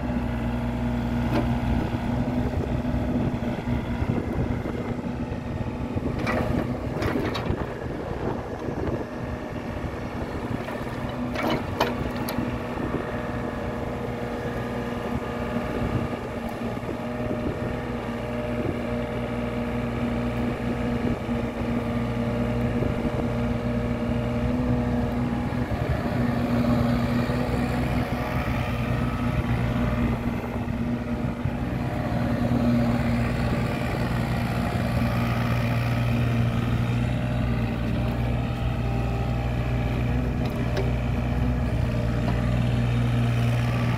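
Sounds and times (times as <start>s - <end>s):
mini excavator engine running: 0.0s - 43.9s.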